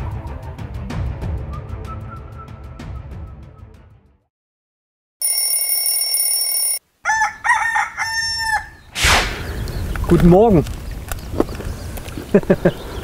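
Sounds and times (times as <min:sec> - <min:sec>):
high ringing tone: 0:05.2 - 0:06.8
rooster crowing: 0:07.0 - 0:08.9
short rushing noise: 0:09.0 - 0:10.0.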